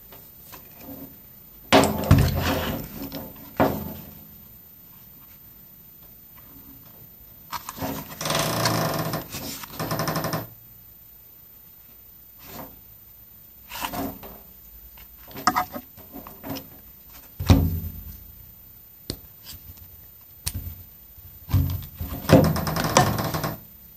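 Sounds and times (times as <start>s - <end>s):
air compressor and hose handling knocks: 1.7s - 4.2s, 17.4s - 18.2s, 21.4s - 23.5s.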